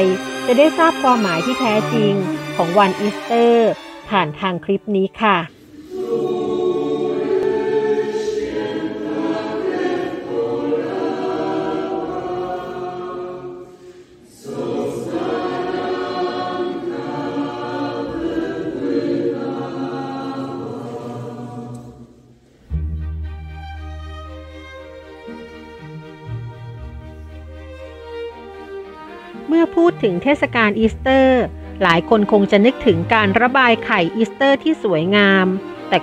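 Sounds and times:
instrumental background music: 0.0 - 13.6, 14.4 - 36.0
group singing a hymn: 5.4 - 22.4.

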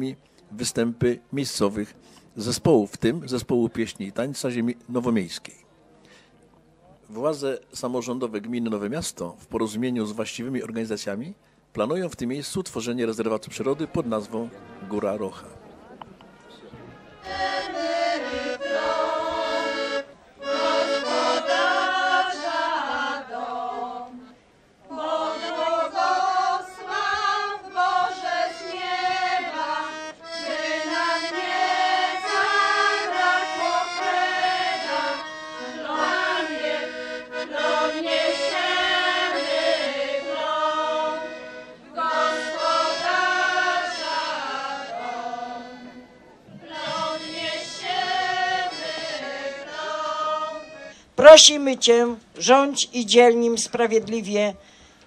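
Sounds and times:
accordion: 12.8 - 55.0
women's folk choir singing: 17.1 - 51.0.

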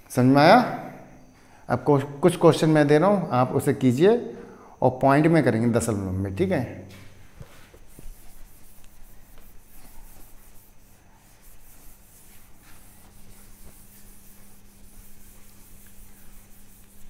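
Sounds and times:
steady low hum: 0.0 - 17.0
cloth wiping whiteboard: 6.9 - 17.0.

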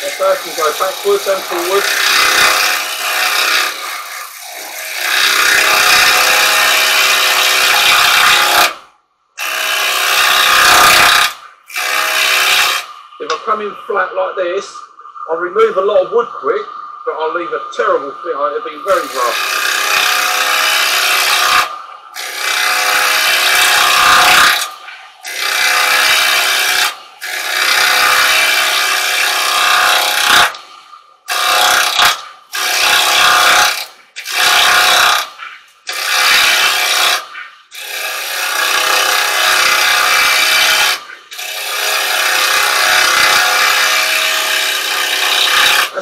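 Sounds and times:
chisel scraping wood on lathe: 0.0 - 3.9, 9.6 - 13.4, 18.9 - 30.6, 31.3 - 46.0.

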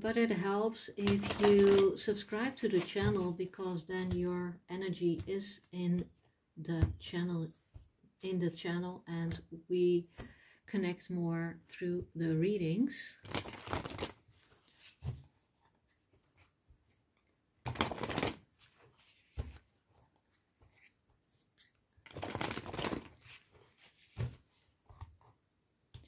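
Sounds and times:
cards being shuffled: 1.0 - 1.9, 13.2 - 15.2, 17.2 - 25.2
cards spread on cloth mat: 13.2 - 25.4
soft card handling: 13.2 - 25.4.

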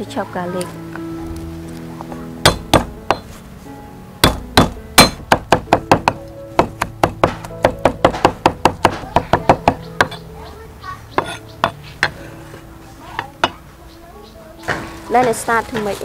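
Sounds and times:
cleaver chopping on wooden block: 2.5 - 3.3, 4.2 - 10.2, 11.2 - 12.2.

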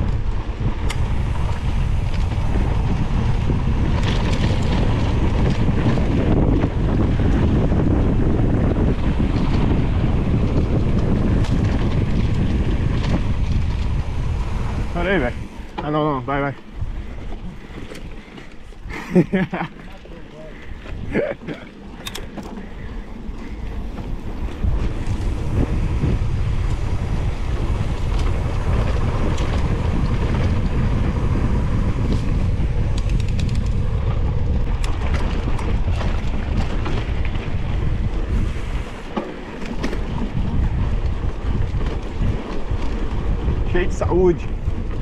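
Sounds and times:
bike clicks and rattles: 0.0 - 45.0
bike tyre noise: 0.0 - 45.0
wind rumbling on microphone: 0.0 - 45.0.

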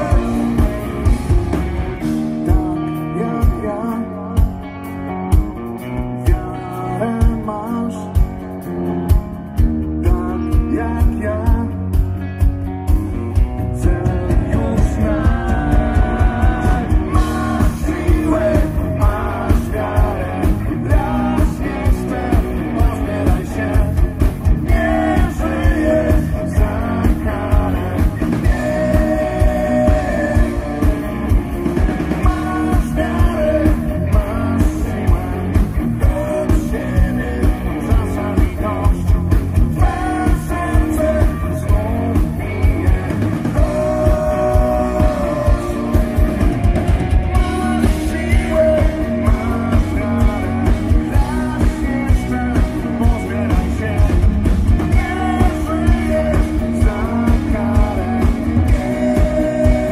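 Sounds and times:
man singing: 0.0 - 1.4, 2.0 - 4.7, 6.0 - 8.6, 9.8 - 12.1, 13.4 - 46.7, 47.3 - 59.9
electric guitars: 0.0 - 59.9
drum beat: 14.3 - 59.9.

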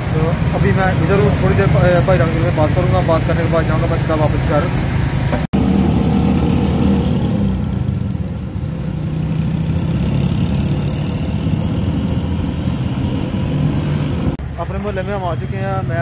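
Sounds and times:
motorcycle engine running: 0.0 - 4.6
road noise: 0.0 - 16.0.

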